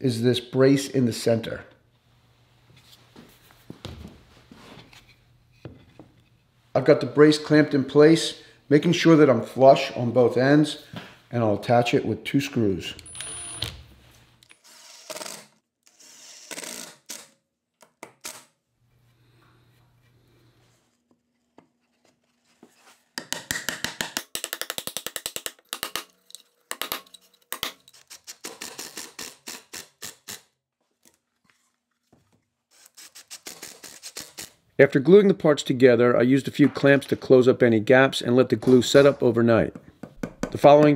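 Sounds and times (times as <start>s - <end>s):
impact driver hammering screws: 13.0s - 13.8s.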